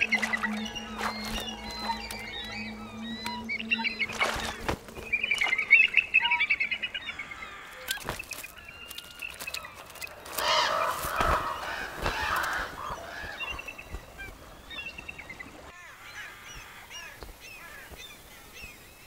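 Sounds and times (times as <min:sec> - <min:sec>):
eagle wing flaps: 0:00.0 - 0:02.5, 0:04.0 - 0:06.0, 0:07.8 - 0:15.5
crows and gulls calling harshly: 0:00.0 - 0:14.6, 0:15.6 - 0:18.6
eagles piping chattering calls: 0:00.0 - 0:18.6.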